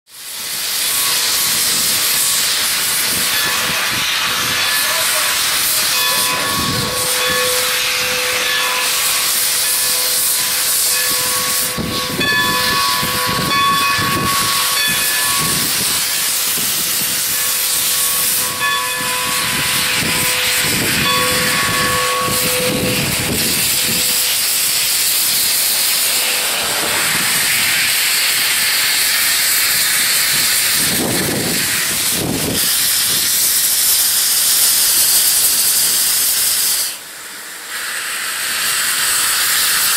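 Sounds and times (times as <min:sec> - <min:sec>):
low locomotive chuffs: 0:00.1 - 0:39.9
steam locomotive hissing: 0:00.1 - 0:39.9
steady high tone: 0:03.4 - 0:29.8.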